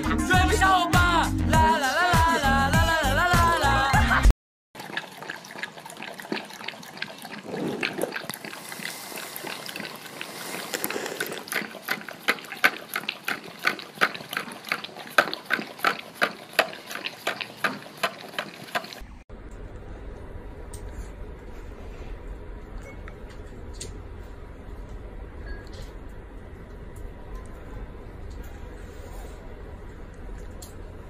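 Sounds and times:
dog lapping and smacking: 4.8s - 19.1s.

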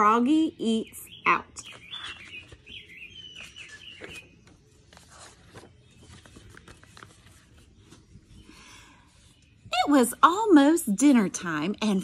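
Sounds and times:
birds chirping: 0.0s - 10.6s
book pages rustling and turning: 1.6s - 8.5s.

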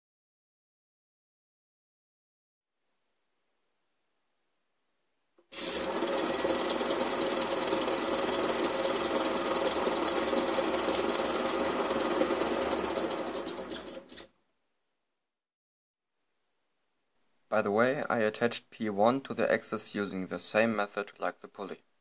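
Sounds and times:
lathe whirring and rattling: 5.6s - 14.3s.

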